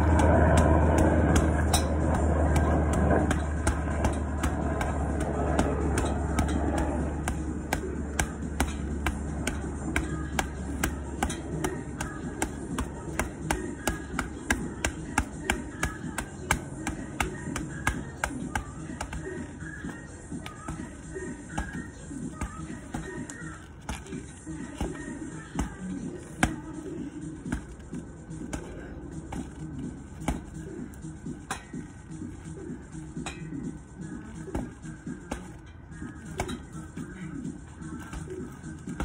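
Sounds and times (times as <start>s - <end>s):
low vehicle rumble: 0.0s - 39.0s
punches thudding on heavy bag: 0.1s - 26.8s.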